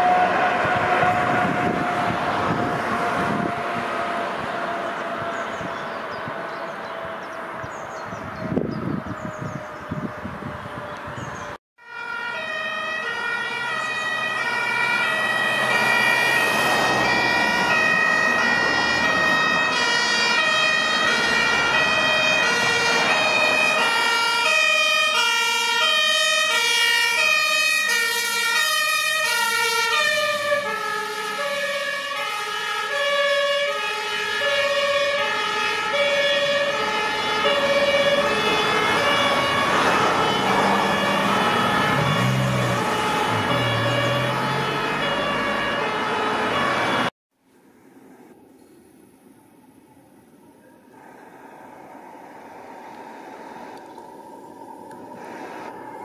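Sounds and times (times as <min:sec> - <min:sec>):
two-tone emergency sirens: 0:00.0 - 0:47.2, 0:52.0 - 0:56.0
vehicle engines running: 0:35.9 - 0:47.1.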